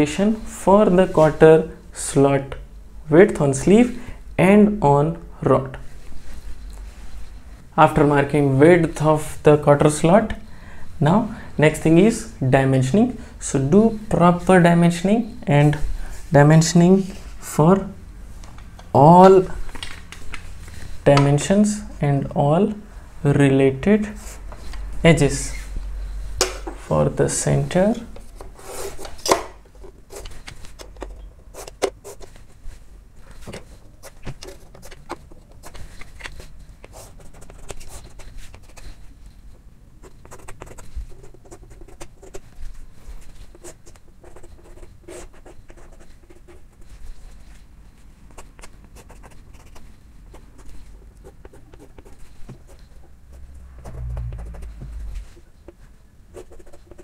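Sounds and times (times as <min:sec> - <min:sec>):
chalk scraping on a blackboard: 0:28.5 - 0:29.2.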